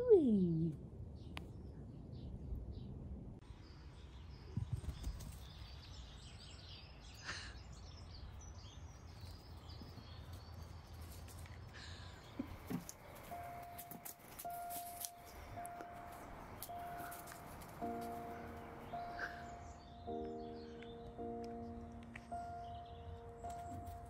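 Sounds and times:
small birds chirping: 0.0 - 24.0
steady low rumble: 11.9 - 24.0.

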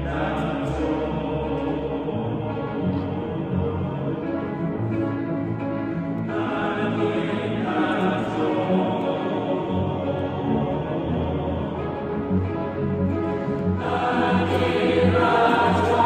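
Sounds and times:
choir singing: 0.0 - 16.0
string orchestra: 0.0 - 16.0.

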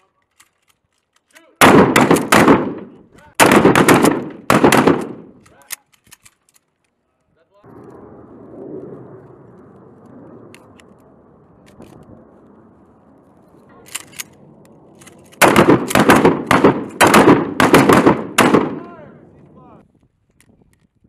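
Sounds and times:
shells loaded into shotgun clicks: 0.0 - 3.4, 4.0 - 7.0, 13.8 - 17.1
loud gunshots: 1.6 - 5.3, 15.4 - 18.9.

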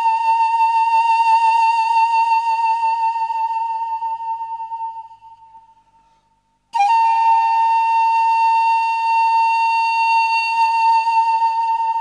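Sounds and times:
high flute-like note: 0.0 - 5.7, 6.7 - 12.0.

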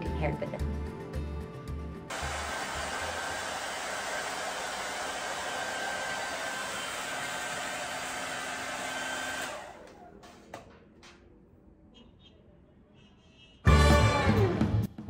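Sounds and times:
hair dryer blowing: 2.1 - 10.1
fan winding down: 2.1 - 10.8.

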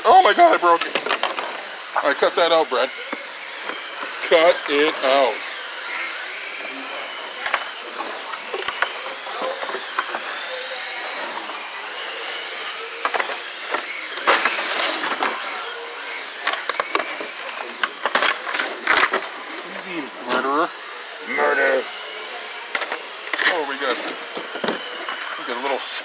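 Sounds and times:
side cutters clicking: 0.5 - 20.5.

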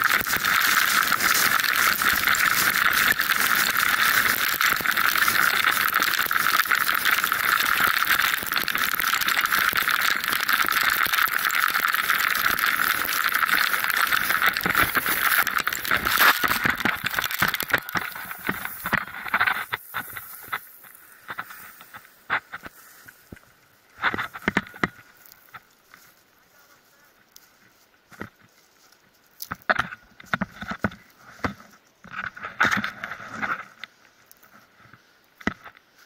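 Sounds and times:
board grinding over gravel: 0.0 - 27.5.

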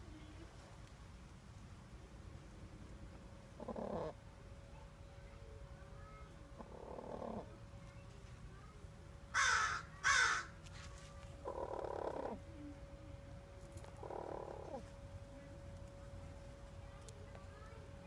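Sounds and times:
crow cawing: 9.3 - 10.6.

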